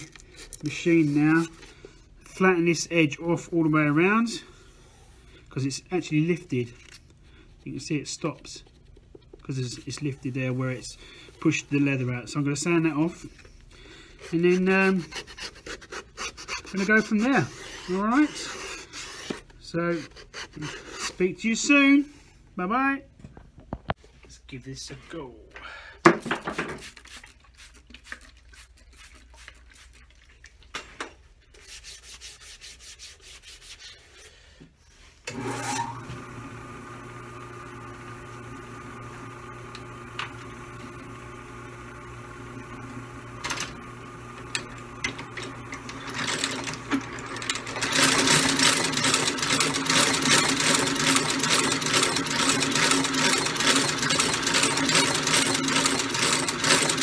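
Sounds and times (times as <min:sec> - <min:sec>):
stitching machine clatter: 0:44.6 - 0:57.0.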